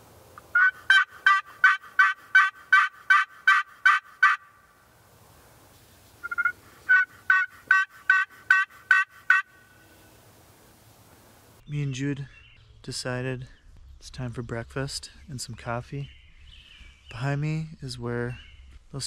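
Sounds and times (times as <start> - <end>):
turkey yelps: 0.5 - 4.5, 6.2 - 9.6.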